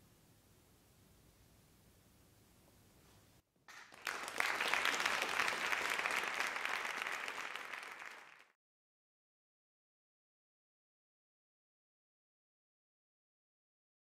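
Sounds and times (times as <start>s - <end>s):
audience applauding: 3.7s - 8.6s.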